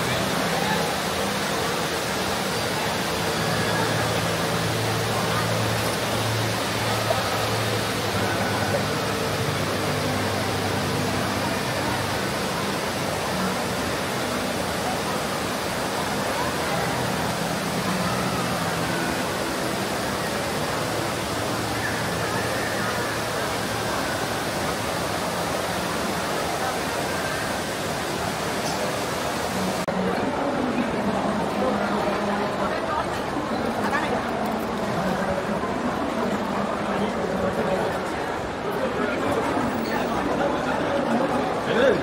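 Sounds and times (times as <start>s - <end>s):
indistinct chatter of many people: 0.0s - 42.0s
murmur of distant voices: 0.0s - 42.0s
steady rush of noise: 0.0s - 42.0s.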